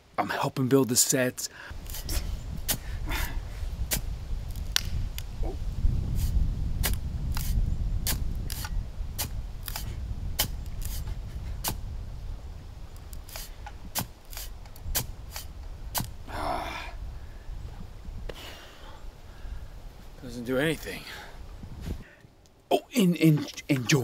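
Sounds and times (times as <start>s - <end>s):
digging tool jabbing sand: 1.8s - 3.0s, 3.9s - 4.1s, 6.1s - 11.8s, 13.2s - 16.2s.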